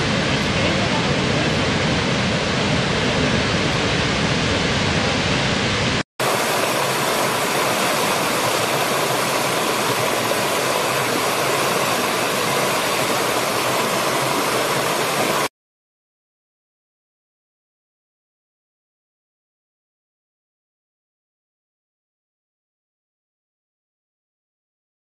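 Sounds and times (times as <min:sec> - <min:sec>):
waterfall rushing: 0:00.0 - 0:15.5
stream rushing over stones: 0:05.8 - 0:15.5.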